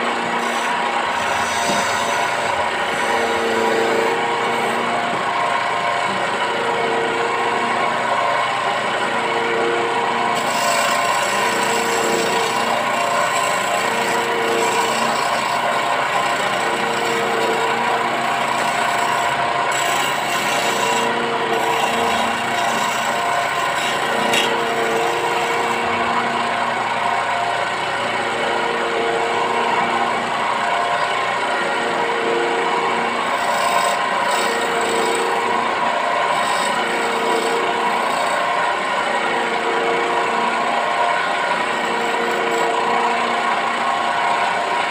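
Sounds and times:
rasping rub of sanding: 0:00.0 - 0:05.4, 0:10.3 - 0:26.4, 0:32.8 - 0:38.7
wood lathe running: 0:00.0 - 0:44.9.

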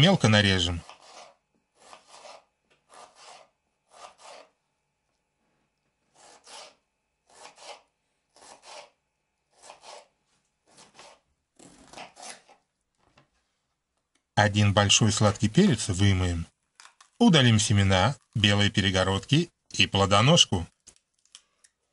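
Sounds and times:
knife dicing on a cutting board: 0:00.8 - 0:04.5, 0:06.2 - 0:10.1.

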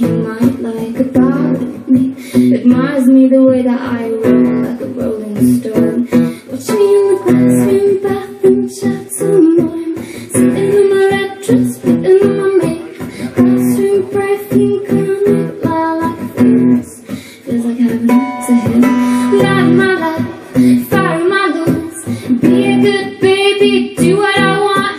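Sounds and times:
strummed acoustic guitar: 0:00.0 - 0:24.9
woman singing: 0:00.0 - 0:24.9.

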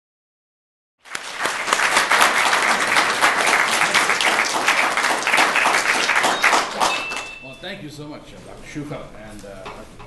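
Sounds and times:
audience applauding: 0:01.0 - 0:07.4.

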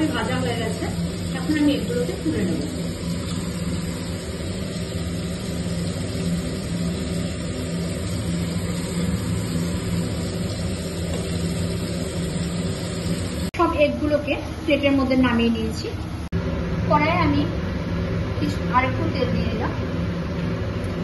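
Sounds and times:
eggs frying in hot oil: 0:00.0 - 0:13.6
kitchen appliance humming: 0:00.0 - 0:21.0.

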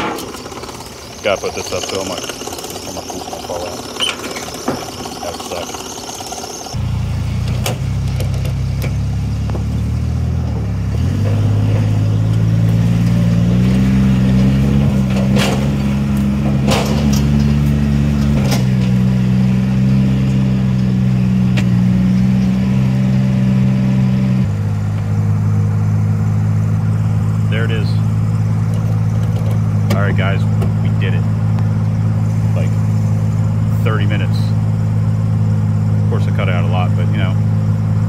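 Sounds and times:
pump knocking: 0:00.0 - 0:06.8
water pump humming: 0:00.0 - 0:09.6, 0:24.5 - 0:38.0.

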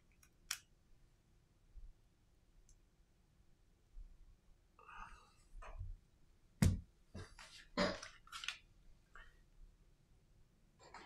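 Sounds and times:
rustling of phone and cables: 0:07.2 - 0:08.7.

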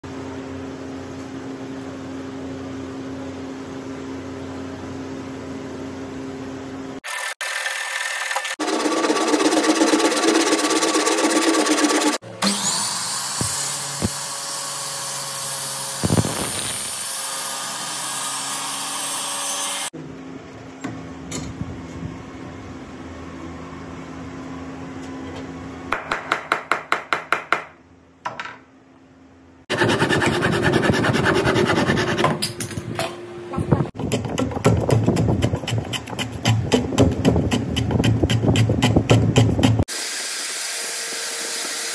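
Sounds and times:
mitre saw running: 0:07.0 - 0:19.9, 0:29.7 - 0:32.2, 0:39.9 - 0:41.9
hand tool rubbing wood: 0:08.6 - 0:12.2, 0:29.7 - 0:32.4, 0:34.0 - 0:39.9
scraping wood by hand: 0:29.7 - 0:32.4, 0:34.1 - 0:39.8.

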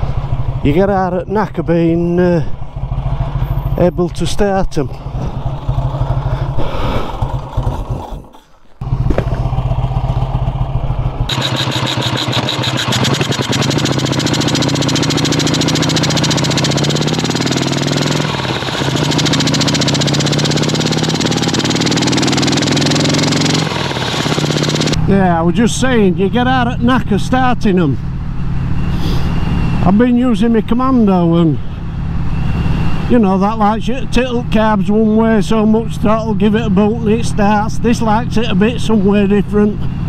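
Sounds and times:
road and wind noise: 0:00.0 - 0:40.0
motorcycle engine revving through gears: 0:02.5 - 0:03.9, 0:05.0 - 0:25.0.

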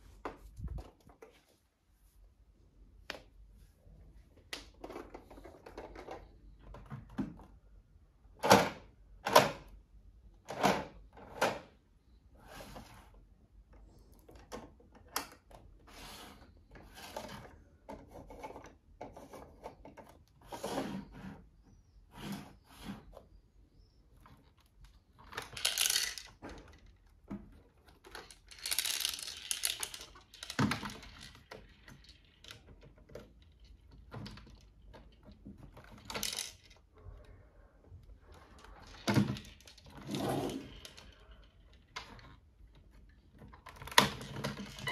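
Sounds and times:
plastic parts scraping: 0:12.4 - 0:37.3, 0:38.0 - 0:44.9
plastic toy parts clicking and knocking: 0:13.6 - 0:15.9, 0:24.2 - 0:37.0, 0:38.3 - 0:44.9.

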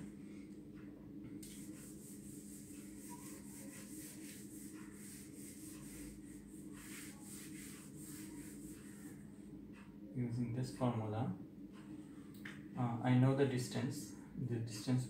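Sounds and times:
steady low hum: 0:00.0 - 0:15.0
cloth wiping whiteboard: 0:01.4 - 0:09.3.

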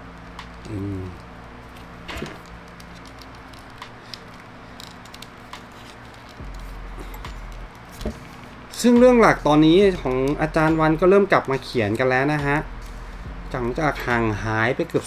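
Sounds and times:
steady low hum: 0:00.0 - 0:15.0
person humming: 0:00.6 - 0:01.2
plastic clicks and rubbing: 0:01.2 - 0:06.6.

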